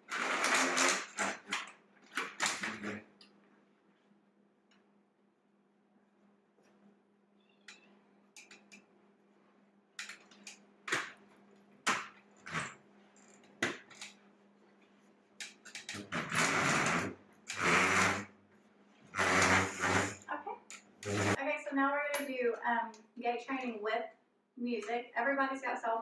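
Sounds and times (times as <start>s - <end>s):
walker scraping on floor: 0.0s - 1.7s, 12.4s - 12.8s, 15.9s - 18.3s, 19.0s - 20.3s, 21.0s - 21.4s.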